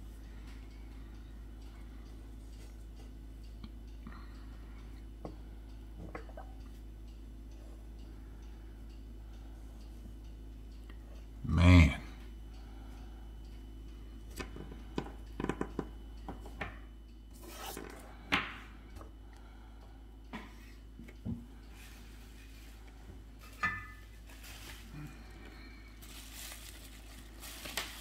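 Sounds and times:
steady low hum: 0:00.0 - 0:28.0
soft rustles: 0:26.0 - 0:28.0.

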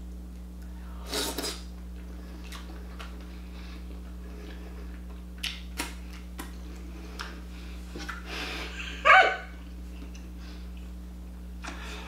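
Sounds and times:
steady low hum: 0:00.0 - 0:12.0
chewing with mouth clicks: 0:02.0 - 0:08.2.

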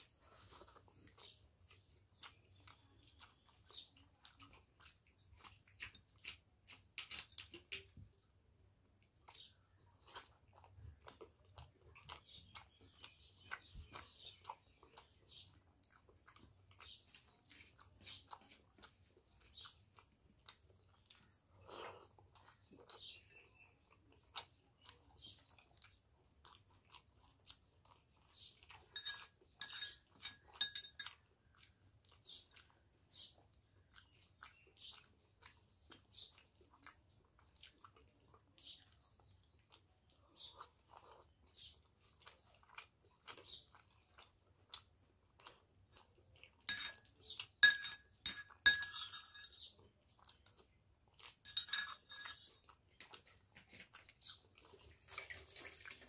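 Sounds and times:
chewing and crunching food: 0:00.0 - 0:56.0
tableware clinking: 0:29.0 - 0:31.2, 0:46.7 - 0:47.0, 0:47.6 - 0:49.6, 0:51.5 - 0:52.5.

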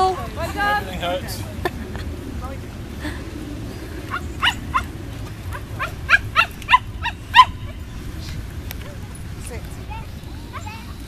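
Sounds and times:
animal rising calls: 0:03.2 - 0:08.1.

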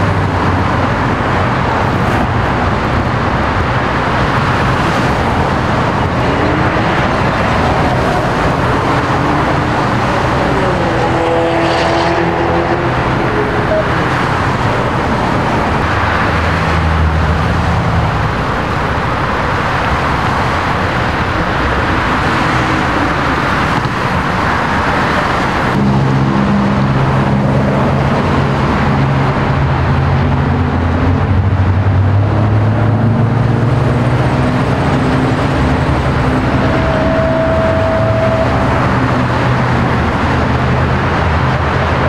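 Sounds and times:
steady tone: 0:00.0 - 0:19.0, 0:20.2 - 0:31.8, 0:32.8 - 0:42.0
freeway traffic passing: 0:00.0 - 0:42.0
heavy vehicle idling drone: 0:12.7 - 0:42.0.

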